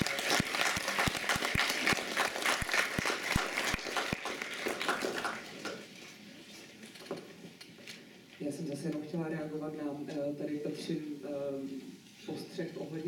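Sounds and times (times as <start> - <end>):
audience applauding: 0.0 - 5.9.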